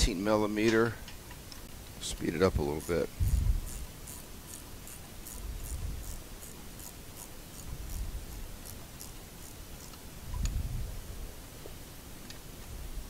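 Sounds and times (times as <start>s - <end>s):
ratchet wrench clicking: 2.0s - 10.0s.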